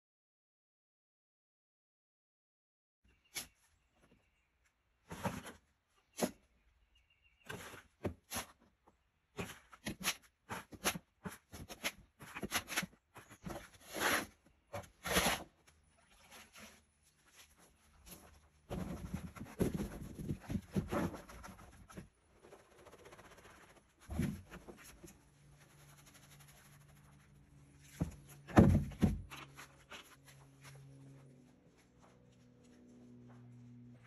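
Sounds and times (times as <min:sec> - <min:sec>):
plastic buckets scraping and thumping: 0:05.0 - 0:06.4, 0:09.3 - 0:22.2, 0:24.0 - 0:25.2, 0:27.7 - 0:30.0.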